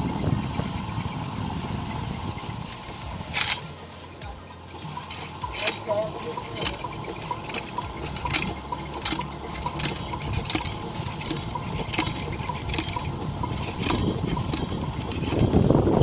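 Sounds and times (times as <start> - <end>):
ramrod clinking in gun barrel: 3.3 - 3.9, 4.8 - 16.0.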